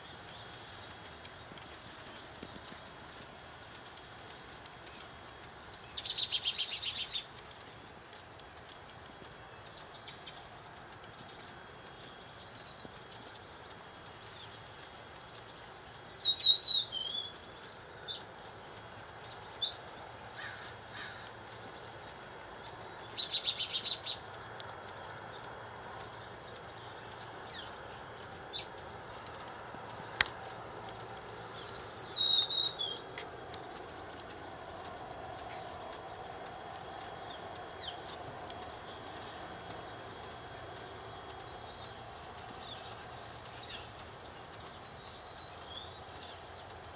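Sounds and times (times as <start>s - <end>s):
background hiss: 0.0s - 46.9s
bird trills: 30.2s - 33.6s.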